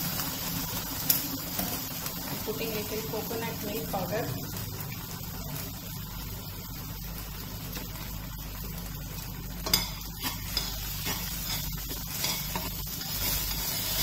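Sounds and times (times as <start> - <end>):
low sizzle from pan: 0.0 - 14.0
spatula stirring and scraping: 9.6 - 14.0.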